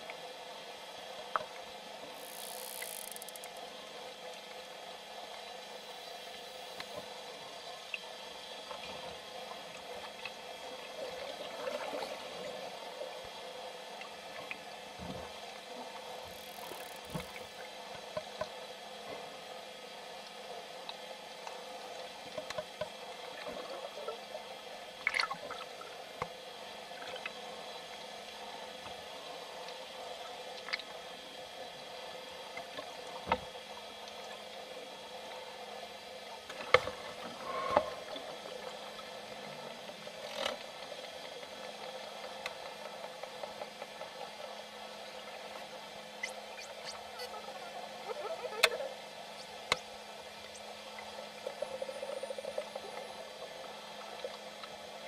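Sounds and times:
dolphin clicks: 2.2 - 3.6
underwater hiss: 2.2 - 3.6.

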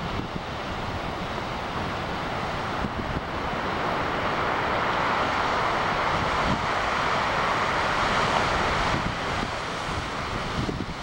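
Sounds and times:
breaking waves roaring: 0.0 - 11.0
wind buffeting microphone: 0.0 - 11.0.

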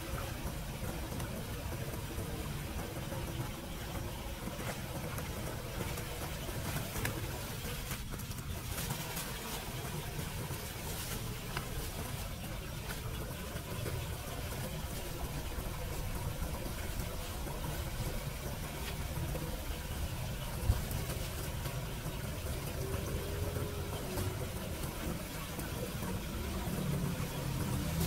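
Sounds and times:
faint engine hum: 0.0 - 28.0
low outdoor rumble: 0.0 - 28.0
wet leaves rustling into bag: 6.6 - 13.2.

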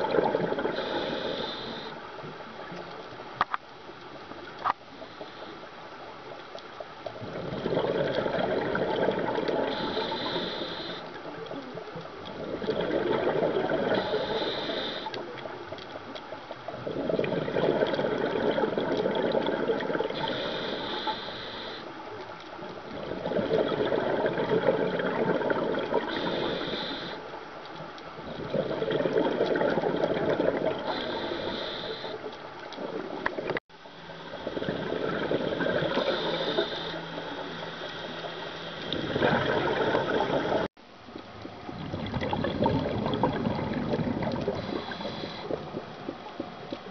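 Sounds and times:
exhaled bubbles burbling: 0.0 - 1.9, 7.1 - 15.8, 16.6 - 21.2, 22.6 - 27.2, 28.2 - 33.6, 34.2 - 38.2, 38.8 - 46.9
diver breathing through regulator: 0.5 - 2.0, 7.3 - 11.2, 12.5 - 15.3, 20.0 - 22.0, 24.6 - 27.3, 28.5 - 32.3, 34.3 - 40.7, 42.7 - 45.9.

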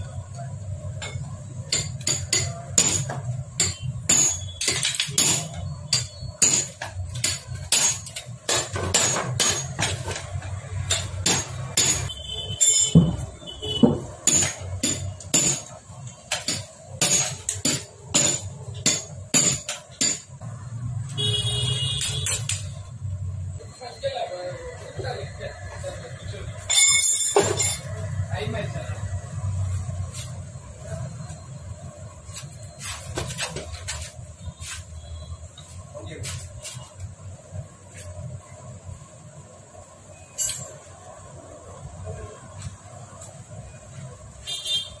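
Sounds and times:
hand tools knocking on metal: 1.0 - 20.4.

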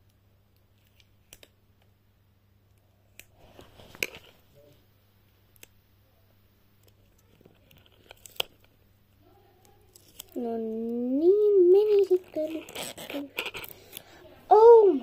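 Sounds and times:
fingers handling plastic toy: 6.8 - 8.8, 9.6 - 11.0, 11.7 - 14.1.

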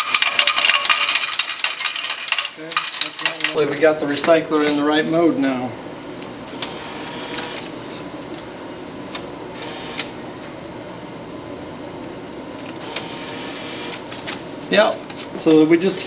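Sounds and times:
bill recycler mechanical whir: 6.4 - 7.8, 9.1 - 10.6, 12.5 - 14.1.

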